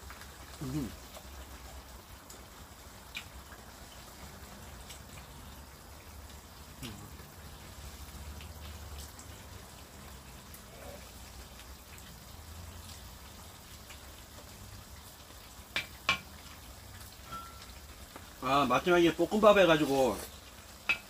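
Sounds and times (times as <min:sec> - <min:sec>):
utensils clinking on dishes: 0:17.3 - 0:17.7.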